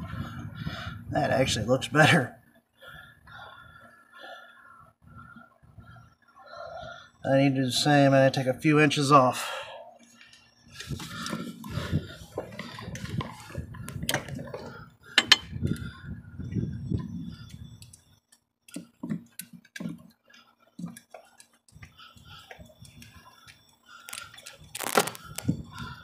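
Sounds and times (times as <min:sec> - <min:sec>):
metal fittings clinking: 0:15.2 - 0:15.5.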